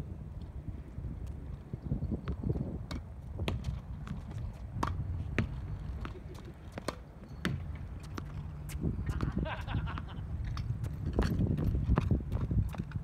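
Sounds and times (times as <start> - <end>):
ball bouncing on hard court: 2.2 - 9.4
racket striking tennis ball: 4.8 - 9.3.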